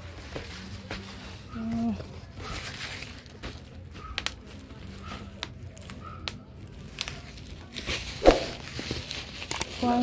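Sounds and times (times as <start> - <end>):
fabric rustling: 7.7 - 10.0.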